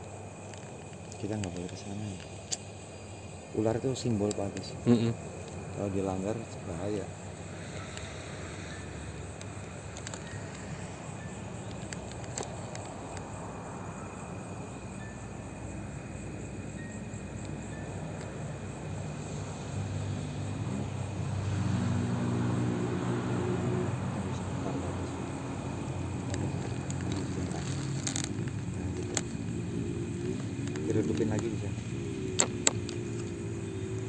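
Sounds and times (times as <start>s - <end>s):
crickets trilling: 0.0s - 34.0s
vehicle engine hum: 0.0s - 34.0s.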